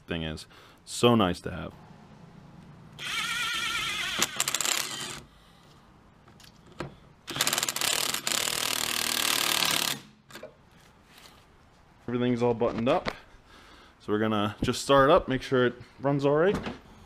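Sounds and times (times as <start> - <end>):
electric ratchet whining and clicking: 3.0 - 5.3, 7.2 - 10.1.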